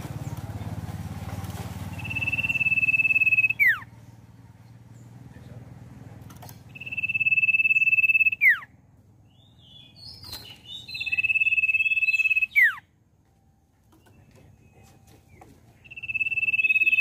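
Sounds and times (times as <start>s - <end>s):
bird chirps: 1.8s - 5.2s, 6.6s - 12.9s, 13.8s - 17.0s
bird whistling: 1.9s - 3.9s, 6.7s - 8.7s, 9.4s - 12.9s, 15.8s - 17.0s.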